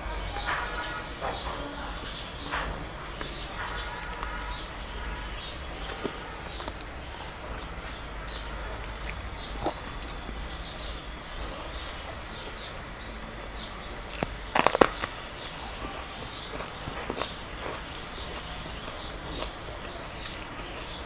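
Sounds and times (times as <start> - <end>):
small birds chirping: 0.0 - 21.0
soft clicks of eating by hand: 15.8 - 20.9.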